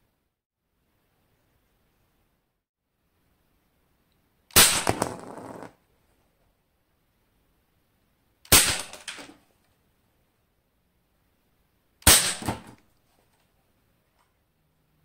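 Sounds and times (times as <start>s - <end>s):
pellet rifle shots: 4.5s - 5.2s, 8.5s - 9.4s, 12.0s - 12.8s.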